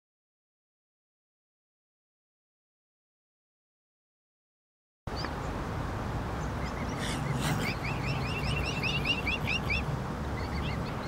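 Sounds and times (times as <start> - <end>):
background hiss: 5.1 - 10.8
cygnets peeping: 6.4 - 11.0.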